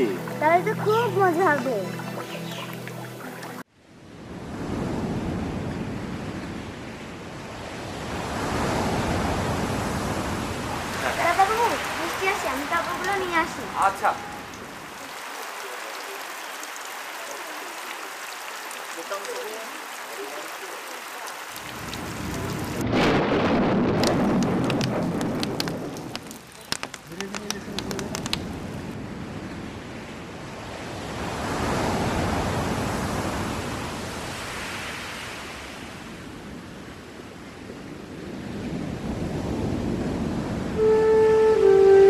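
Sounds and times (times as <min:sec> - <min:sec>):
heavy rain pouring: 0:00.0 - 0:03.7, 0:07.8 - 0:29.0, 0:38.5 - 0:42.0
sharp raindrop ticks: 0:12.0 - 0:13.5, 0:23.9 - 0:28.6
thunder rumbling: 0:21.7 - 0:26.6.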